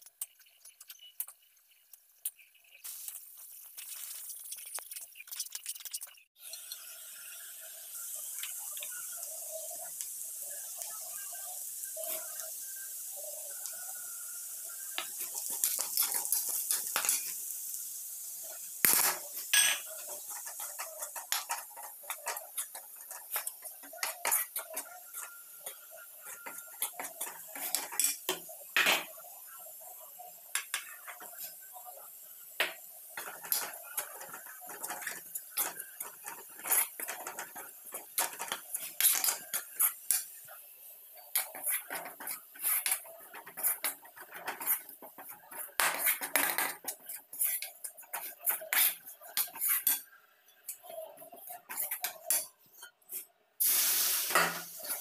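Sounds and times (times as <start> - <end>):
spatula scraping a pan: 14.6 - 17.4, 18.4 - 28.6, 30.6 - 31.7, 32.6 - 53.3, 54.1 - 55.0.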